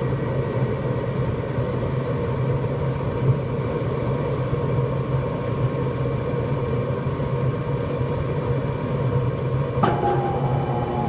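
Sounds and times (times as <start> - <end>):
blower motor whine: 8.8 - 11.0
furnace humming: 8.9 - 11.0.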